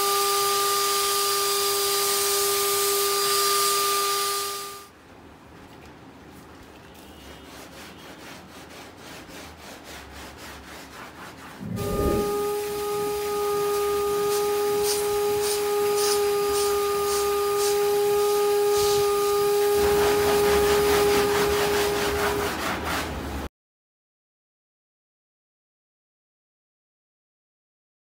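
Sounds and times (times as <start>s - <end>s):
faint rubbing strokes: 7.3s - 13.0s
vacuum cleaner running: 11.6s - 22.6s.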